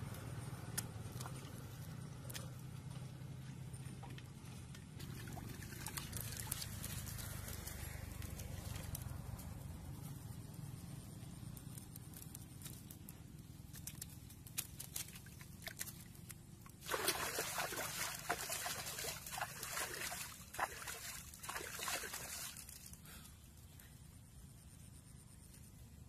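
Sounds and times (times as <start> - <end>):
hands splashing in muddy water: 5.0 - 7.6, 16.8 - 22.9.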